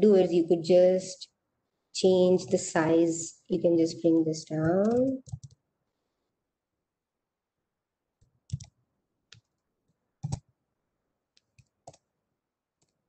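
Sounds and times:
computer mouse and keyboard clicks: 0:04.6 - 0:05.6, 0:08.2 - 0:09.6, 0:10.2 - 0:10.5, 0:11.4 - 0:12.1.

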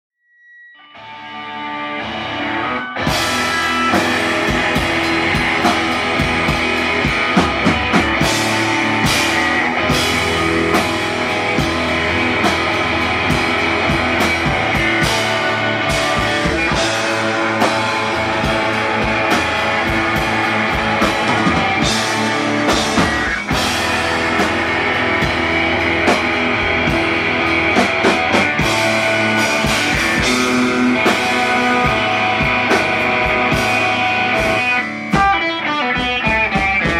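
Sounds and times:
electric guitar: 0:00.8 - 0:36.9
rock band playing live: 0:00.9 - 0:36.9
drum kit: 0:02.0 - 0:36.9.

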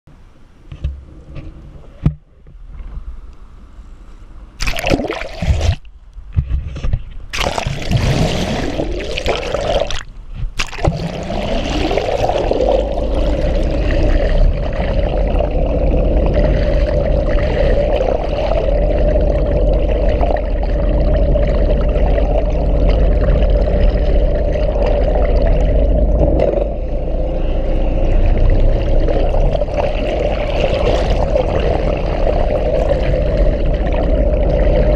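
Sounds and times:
underwater rushing water: 0:04.6 - 0:05.9, 0:07.3 - 0:34.9
water splashing: 0:04.6 - 0:05.9, 0:07.3 - 0:34.9
boat motor through water: 0:10.6 - 0:34.9.

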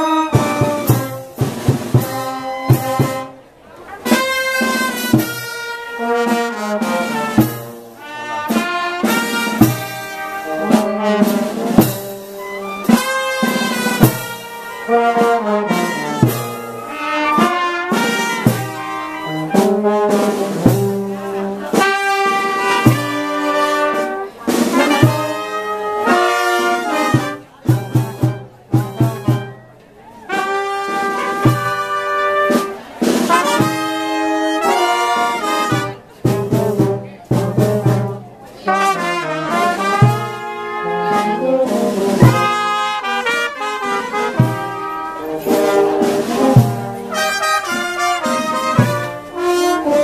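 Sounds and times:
brass band playing: 0:00.0 - 0:50.0
percussion strokes: 0:43.2 - 0:49.7.

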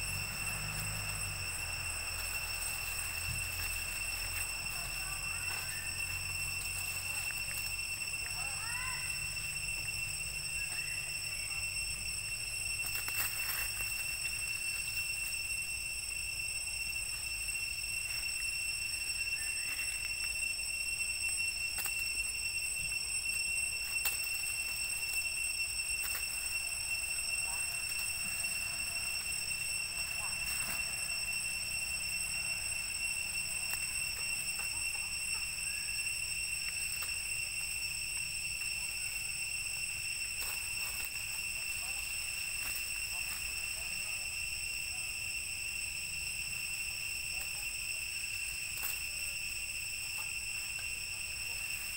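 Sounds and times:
clicks and rustles of leaves: 0:00.0 - 0:09.2, 0:09.8 - 0:15.5, 0:21.7 - 0:44.3, 0:47.3 - 0:51.9
high-pitched drone: 0:00.0 - 0:51.9
high-pitched insect whine: 0:00.0 - 0:51.9
clicks and rustles in dry leaves: 0:00.6 - 0:09.1, 0:12.8 - 0:15.3, 0:23.8 - 0:25.1, 0:25.9 - 0:26.6, 0:40.3 - 0:43.9, 0:48.3 - 0:49.1.

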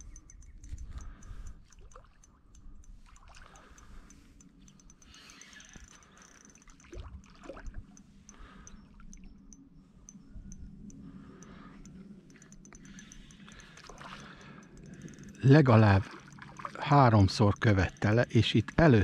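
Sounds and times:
fishing reel ticking: 0:00.0 - 0:19.0
soft water splashes: 0:01.6 - 0:04.4, 0:06.1 - 0:09.0, 0:15.4 - 0:17.8.

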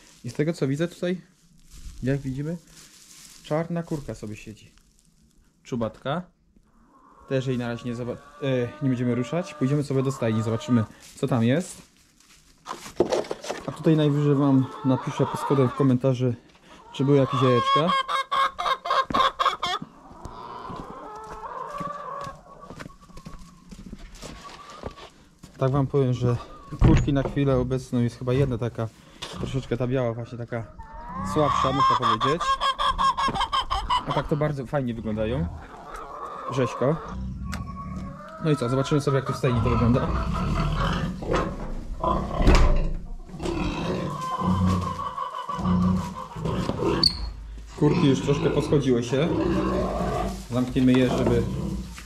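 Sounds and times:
chickens calling: 0:06.6 - 0:52.0
pig grunting: 0:33.8 - 0:52.0.

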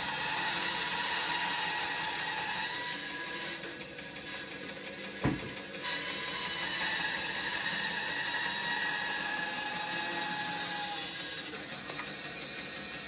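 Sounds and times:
bandsaw cutting log: 0:00.0 - 0:13.0
thump: 0:05.2 - 0:05.6.

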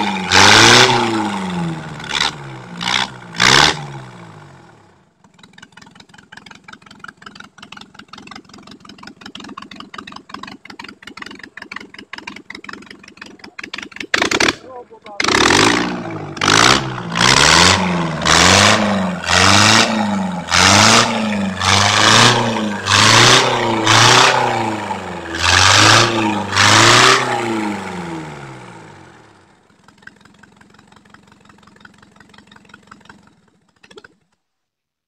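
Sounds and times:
diesel engine revving: 0:00.0 - 0:05.0, 0:09.2 - 0:29.8.

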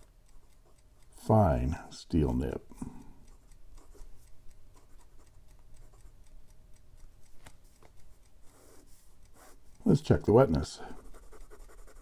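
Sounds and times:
pen nib scratching paper: 0:08.4 - 0:09.7, 0:10.9 - 0:12.0.

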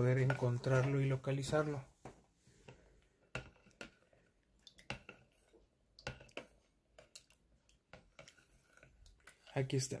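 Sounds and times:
metal spoon tapping plastic pitcher: 0:02.7 - 0:09.2.

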